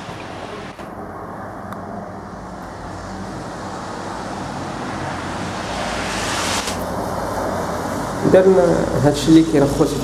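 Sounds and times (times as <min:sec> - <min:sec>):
traffic engine noise: 0:00.0 - 0:10.0
tyres hissing on wet road: 0:03.2 - 0:10.0.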